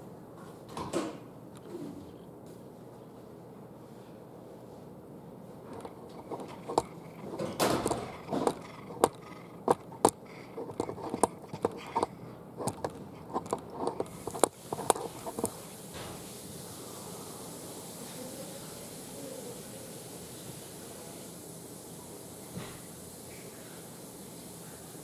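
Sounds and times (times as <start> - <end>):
scuffling noises: 2.4 - 15.6
sharp clicks and knocks: 5.7 - 15.6
faint steady hiss: 14.1 - 25.0.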